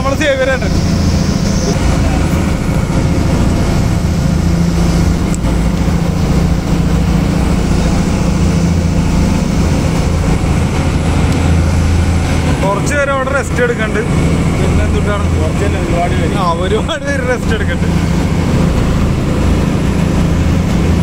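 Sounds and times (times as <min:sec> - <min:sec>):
boat engine droning: 0:00.0 - 0:21.0.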